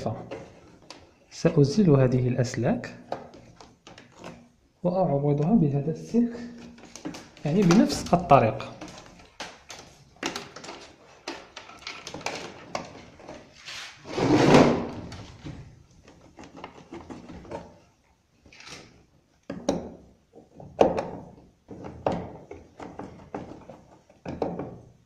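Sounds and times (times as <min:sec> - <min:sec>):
plastic clicks and rattling: 0:06.6 - 0:13.5
rustling scrape: 0:13.4 - 0:15.0.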